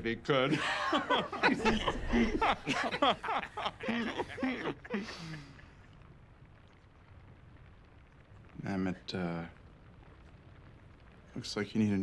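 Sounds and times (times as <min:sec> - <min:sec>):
man laughing heartily: 0:00.5 - 0:05.7
breathy hiss: 0:03.8 - 0:05.8.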